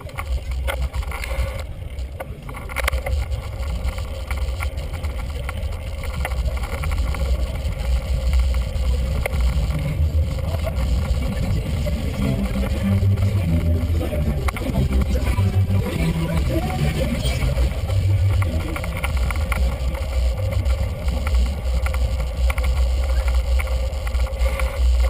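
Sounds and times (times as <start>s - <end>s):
bicycle road rumble: 0.0s - 25.0s.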